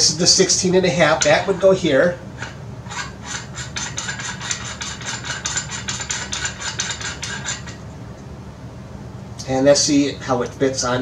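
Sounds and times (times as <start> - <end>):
metal threads scraping ticks: 2.9 - 7.8.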